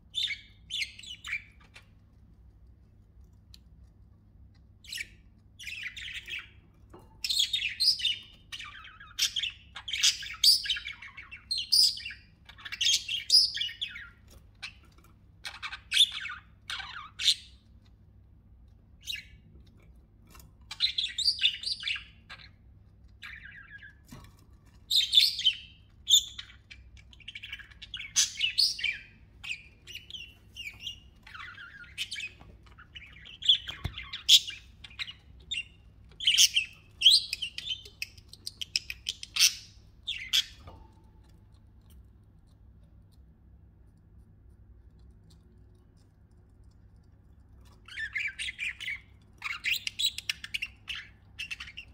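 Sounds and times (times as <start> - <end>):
budgerigars chirping and warbling: 0.1 - 2.0, 4.8 - 17.6, 20.4 - 22.6, 23.2 - 40.9, 47.8 - 51.9.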